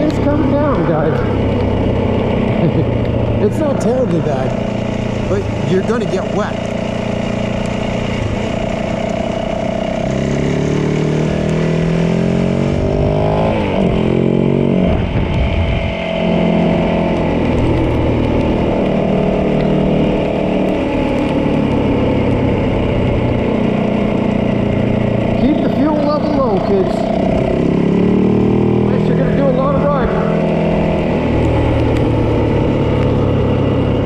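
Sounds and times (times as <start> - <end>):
dirt bike engine running: 0.0 - 34.0.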